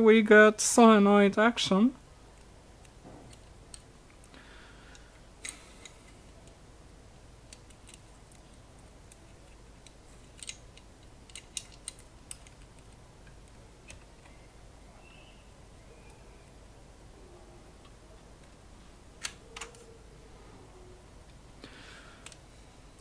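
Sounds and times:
small parts clicking and tapping: 0:02.3 - 0:06.6, 0:07.4 - 0:14.4, 0:22.2 - 0:23.0.

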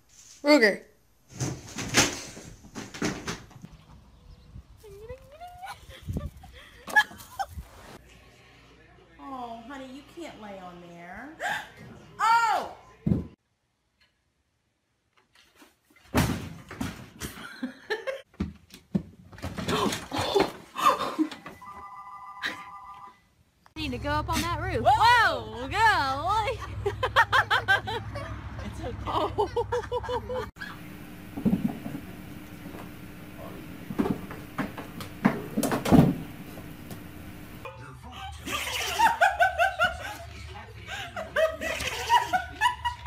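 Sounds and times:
faint hum: 0:30.6 - 0:37.6
thumps and knocks: 0:30.8 - 0:37.6.

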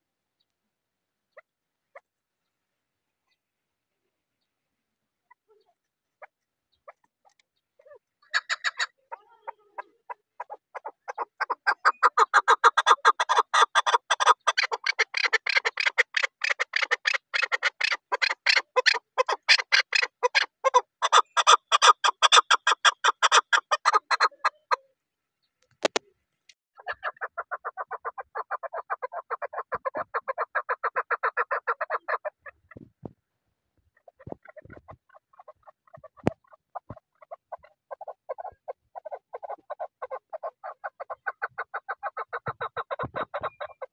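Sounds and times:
partridge rapid chuck calls: 0:10.1 - 0:24.8.

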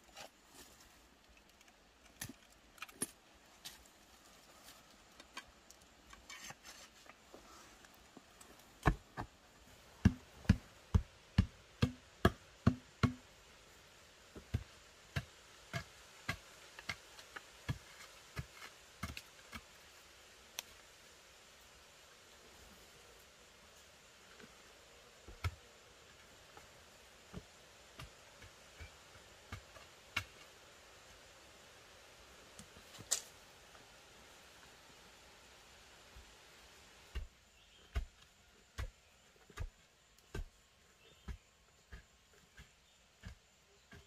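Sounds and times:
hand tool striking wood: 0:10.0 - 0:13.2, 0:37.1 - 0:44.0.

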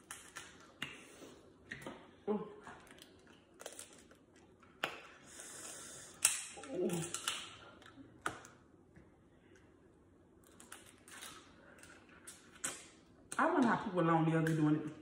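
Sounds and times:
crab shell cracking: 0:00.0 - 0:00.9.

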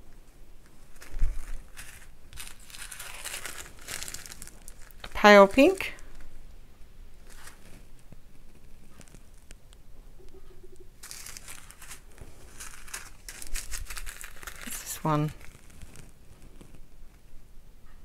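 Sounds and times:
plastic bags crinkling: 0:00.6 - 0:06.4, 0:07.2 - 0:09.5, 0:11.0 - 0:16.8.

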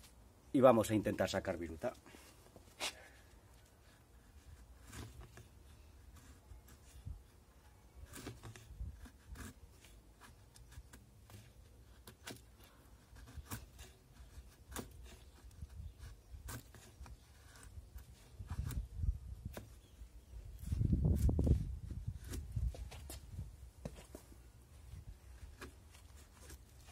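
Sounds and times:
knife scraping wood: 0:03.6 - 0:07.4, 0:08.0 - 0:23.2, 0:25.2 - 0:26.9.

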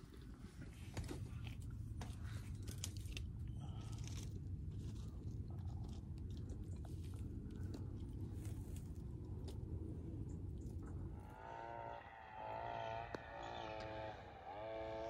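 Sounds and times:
people chewing and crunching: 0:00.0 - 0:11.2
low steady rumble: 0:00.0 - 0:15.0.

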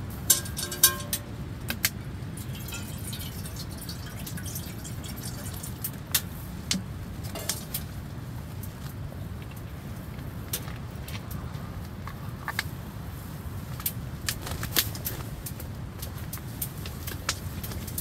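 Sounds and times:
metal pan clinks and knocks: 0:00.3 - 0:01.2
water pouring into metal pan: 0:02.4 - 0:05.8.

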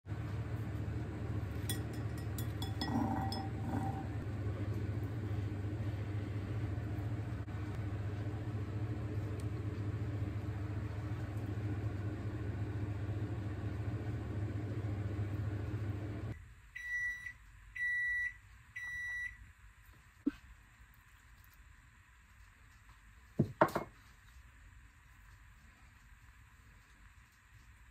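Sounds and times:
electric appliance humming: 0:00.1 - 0:17.0.

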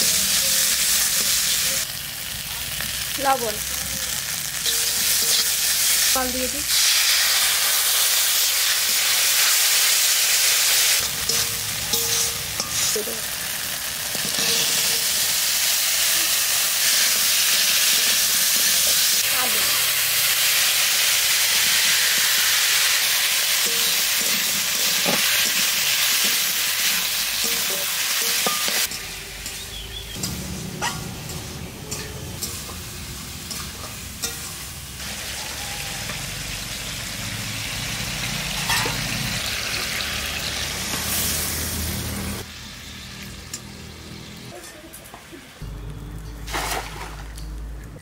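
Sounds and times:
masala sizzling in a pan: 0:00.0 - 0:45.6
metal spatula scraping a pan: 0:30.3 - 0:34.7, 0:38.5 - 0:39.1.

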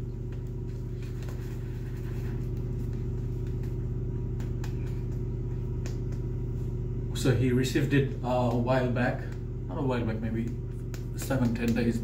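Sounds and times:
low machine hum: 0:00.0 - 0:12.0
shaving brush swishing lather: 0:00.6 - 0:06.8.

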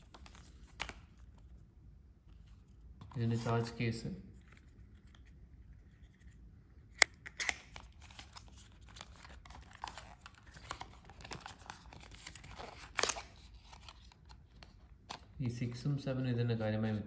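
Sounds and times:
packaging rustling and crinkling: 0:07.7 - 0:15.3.

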